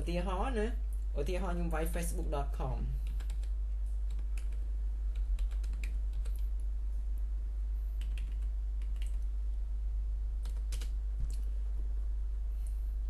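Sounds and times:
low electrical hum: 0:00.0 - 0:13.0
computer keyboard typing: 0:03.0 - 0:06.5, 0:08.0 - 0:09.2, 0:10.4 - 0:11.5.

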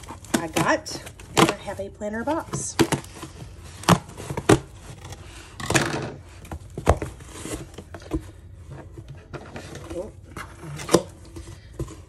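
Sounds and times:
tape and cardboard tearing: 0:00.0 - 0:08.0.

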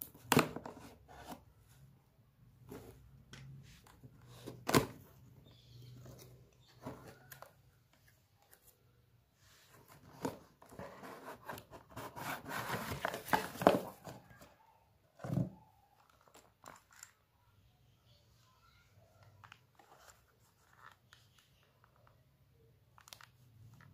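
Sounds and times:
cardboard box scraping and rustling: 0:09.8 - 0:14.0.

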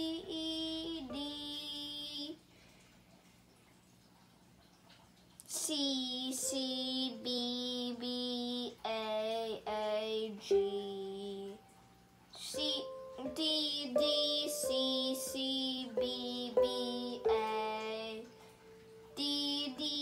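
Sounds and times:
child singing: 0:00.0 - 0:02.4, 0:05.5 - 0:11.6, 0:12.4 - 0:18.3, 0:19.1 - 0:20.0.

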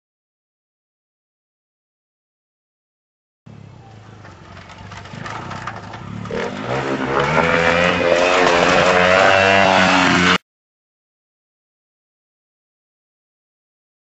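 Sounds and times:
motorbike engine revving: 0:03.5 - 0:10.4.

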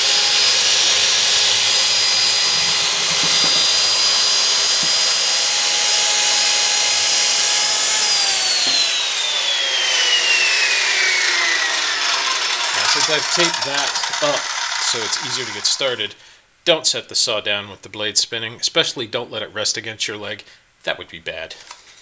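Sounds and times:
saw motor whine spinning down: 0:00.0 - 0:16.0
circular saw cutting wood: 0:00.0 - 0:16.1.

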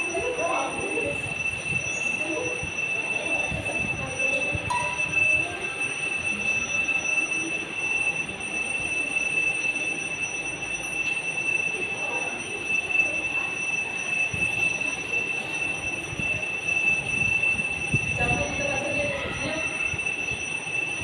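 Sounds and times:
high-pitched whine: 0:00.0 - 0:05.7.

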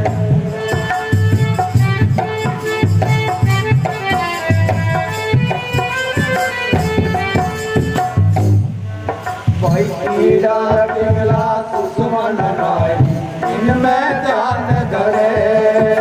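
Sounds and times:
folk string instrument melody: 0:00.0 - 0:16.0
hand drum beats: 0:00.0 - 0:16.0.

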